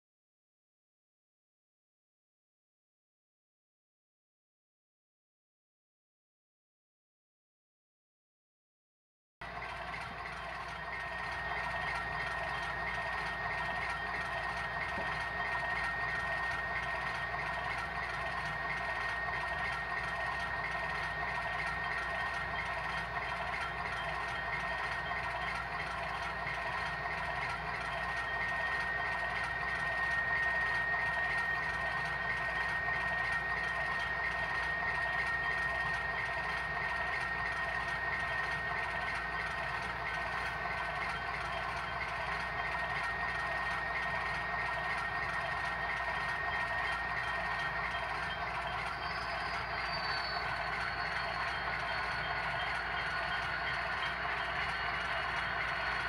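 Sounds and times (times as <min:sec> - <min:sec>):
high-pitched whine: 0:09.4 - 0:56.0
model locomotive engine running: 0:09.4 - 0:56.0.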